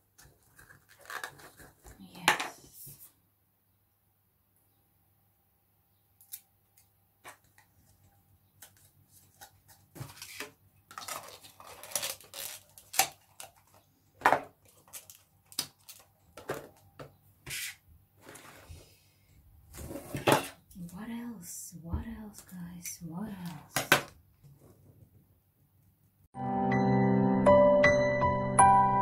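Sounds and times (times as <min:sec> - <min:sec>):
plastic pots and lids clicking: 0:00.2 - 0:02.5.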